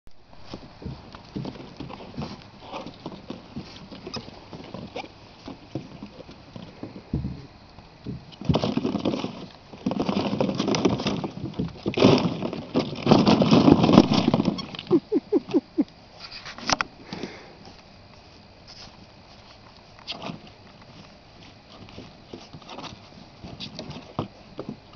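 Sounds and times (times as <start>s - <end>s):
short squeaks: 14.0s - 16.5s.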